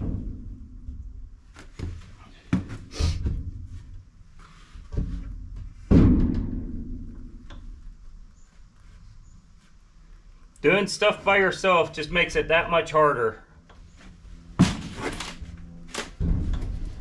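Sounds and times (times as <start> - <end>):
wooden boards knocking on steel wall: 5.0 - 7.4.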